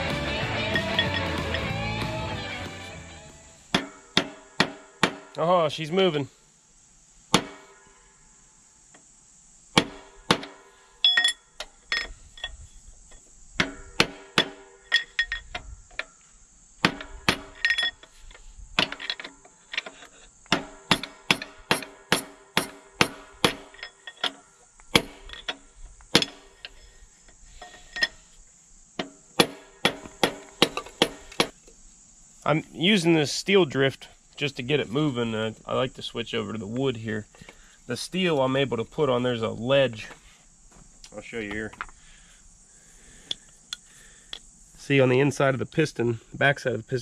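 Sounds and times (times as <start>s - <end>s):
hammer striking metal drift: 0.2s - 2.2s, 7.3s - 8.1s, 20.5s - 24.0s, 29.0s - 31.6s.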